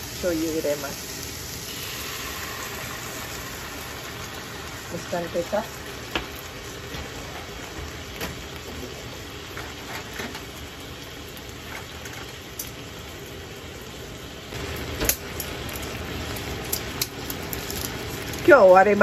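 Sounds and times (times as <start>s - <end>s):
kitchen fan humming: 0.0s - 19.0s
pan ticking and crackling: 4.9s - 12.9s, 14.5s - 19.0s.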